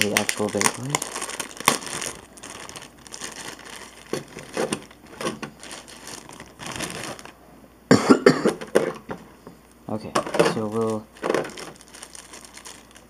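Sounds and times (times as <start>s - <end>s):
plastic bag crinkling: 0.0s - 7.4s, 10.2s - 13.0s.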